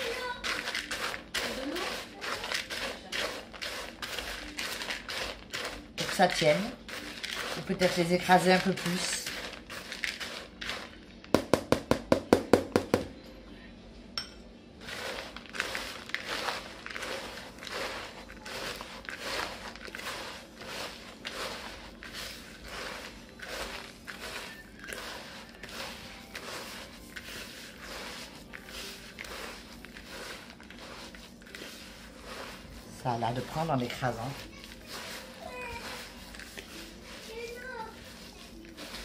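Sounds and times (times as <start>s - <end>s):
hand crunching granola crumbs: 0.0s - 11.3s, 14.8s - 39.0s
spatula knocking plastic bowl: 11.4s - 13.1s.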